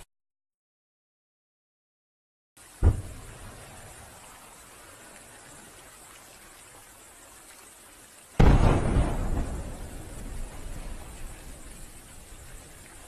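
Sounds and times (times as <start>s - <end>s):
faint steady hiss: 2.6s - 13.0s
firework shell bursting boom: 2.8s - 3.3s, 8.4s - 9.8s.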